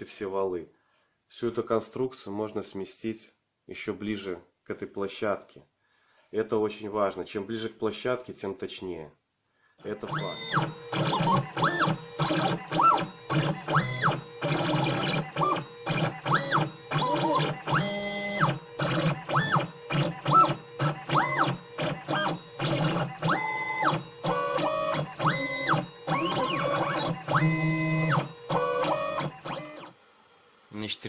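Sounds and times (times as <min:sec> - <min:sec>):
stepper motor whining: 0:09.8 - 0:30.7.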